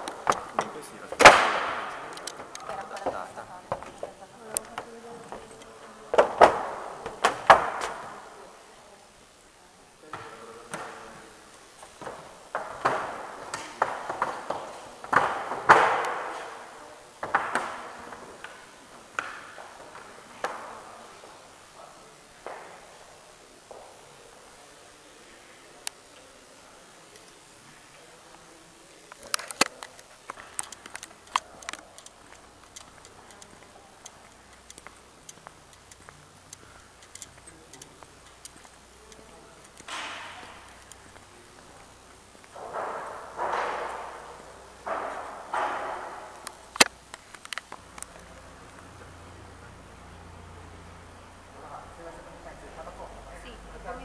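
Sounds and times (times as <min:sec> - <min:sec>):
faint irregular clicks: 0:29.1 - 0:39.9, 0:46.3 - 0:48.9.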